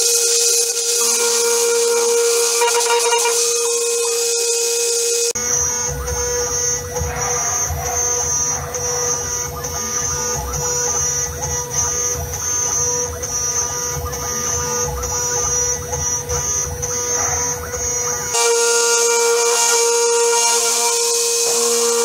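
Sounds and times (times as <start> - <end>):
high pulsing hiss: 0.0 - 22.0
spindle whine: 0.0 - 22.0
metal cutting rumble: 5.3 - 22.0.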